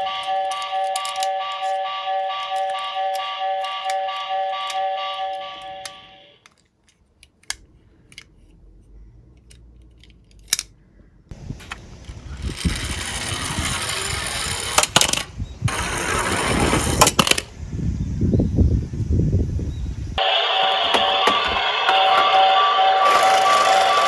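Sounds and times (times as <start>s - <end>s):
toy cars clicking: 6.4s - 8.6s, 9.3s - 10.8s, 11.7s - 17.5s, 23.0s - 24.0s
toy truck rolling down wooden slope: 12.0s - 17.5s, 20.9s - 24.0s.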